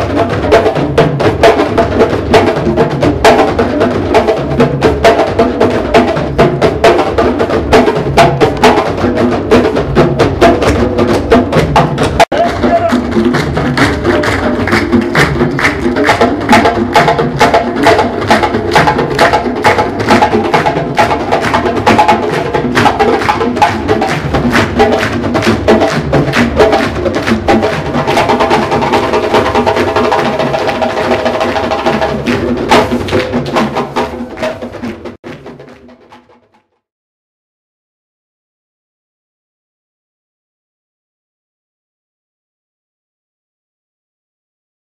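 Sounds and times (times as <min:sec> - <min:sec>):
djembe hand drums: 0:00.0 - 0:36.8.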